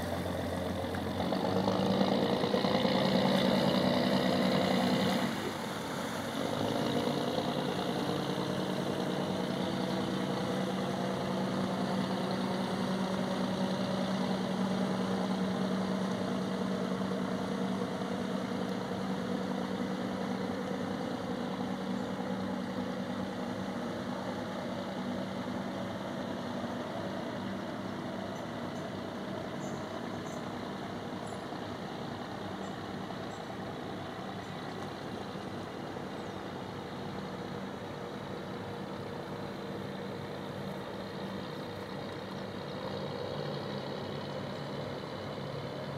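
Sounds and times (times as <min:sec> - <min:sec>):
boat diesel engine droning: 0:00.0 - 0:45.9.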